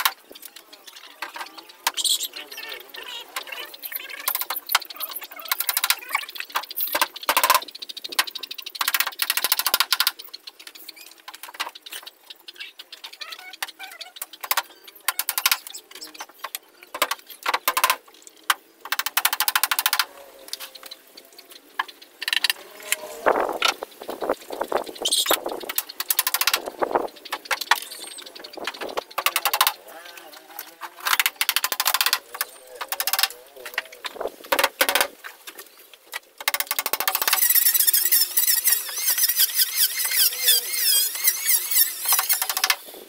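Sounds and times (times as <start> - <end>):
hammer nailing wood: 29.2 - 29.7.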